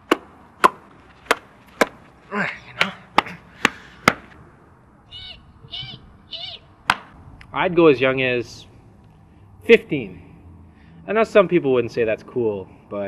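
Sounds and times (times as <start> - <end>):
gloved hands slapping together: 2.8 - 4.4.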